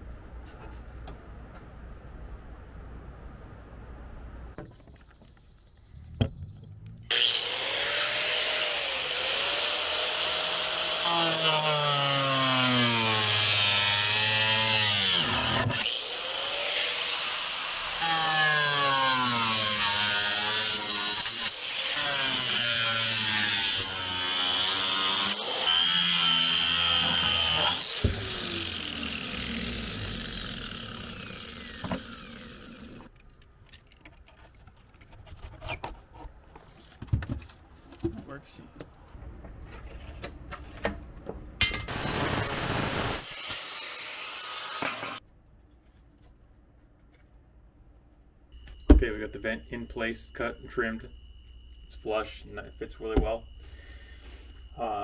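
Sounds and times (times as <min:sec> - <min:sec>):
angle grinder cutting sheet metal: 0:07.1 - 0:33.1, 0:41.8 - 0:45.2.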